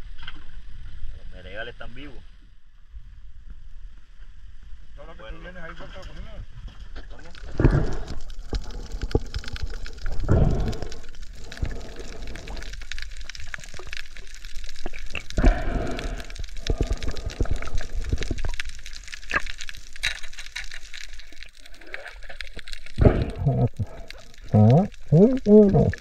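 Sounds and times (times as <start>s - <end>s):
water sloshing and gurgling: 6.6s - 26.0s.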